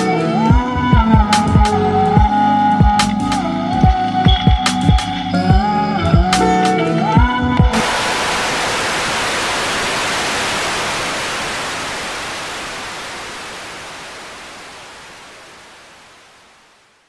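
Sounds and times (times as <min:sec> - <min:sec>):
static-like hiss: 0:07.7 - 0:17.0.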